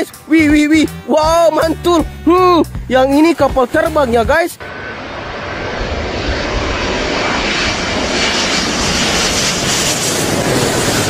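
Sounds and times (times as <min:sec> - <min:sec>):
jet airliner passing overhead: 0:03.6 - 0:11.0.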